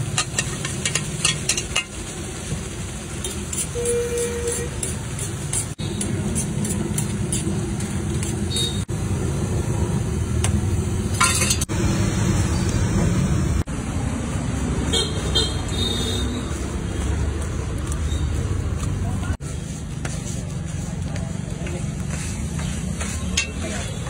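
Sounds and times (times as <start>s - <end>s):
street traffic rumble: 0.0s - 24.0s
metal spatula scraping griddle: 11.2s - 11.7s.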